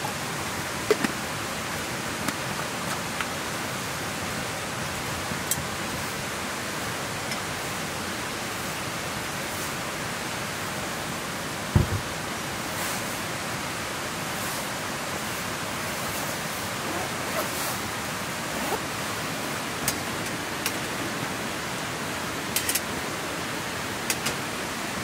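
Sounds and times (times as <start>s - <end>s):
heavy drops tapping: 11.8s - 12.1s.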